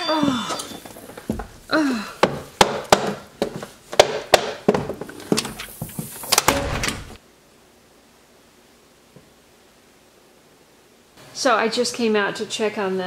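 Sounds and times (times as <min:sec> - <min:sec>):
sharp knocks and thumps: 0:02.2 - 0:07.2.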